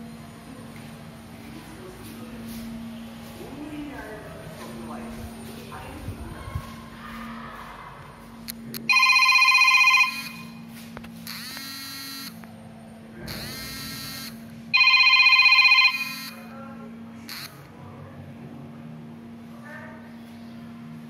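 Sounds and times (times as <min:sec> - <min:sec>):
telephone ringing: 0:08.9 - 0:10.6, 0:13.4 - 0:16.5.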